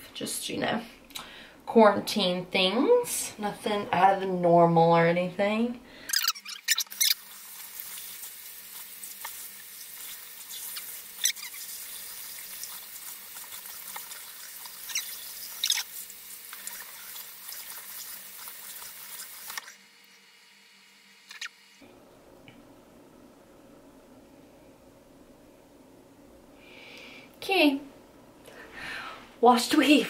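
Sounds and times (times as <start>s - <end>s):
short clicks and squeaks: 6.1s - 7.2s, 10.5s - 11.7s, 21.3s - 21.6s.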